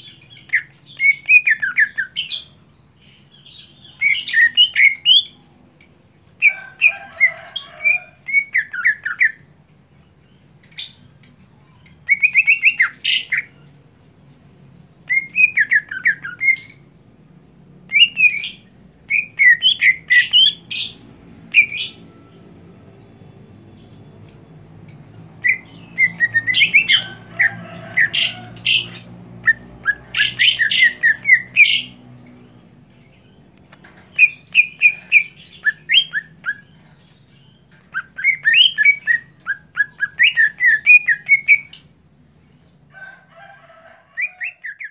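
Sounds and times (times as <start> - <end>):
bird singing chattering notes: 23.7 - 42.9.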